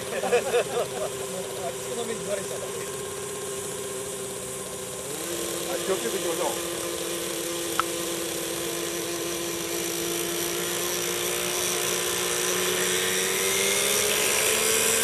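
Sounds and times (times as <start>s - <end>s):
helicopter rotor whirring: 0.0s - 15.0s.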